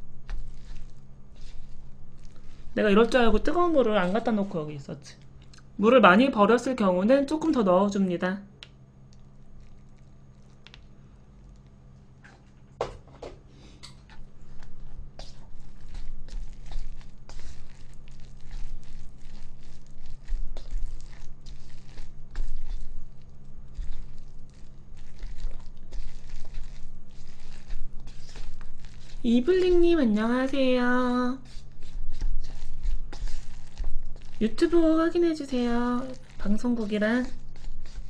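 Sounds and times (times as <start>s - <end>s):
chopsticks stirring wet noodles: 0.2s - 5.4s, 9.5s - 10.9s, 13.8s - 38.0s.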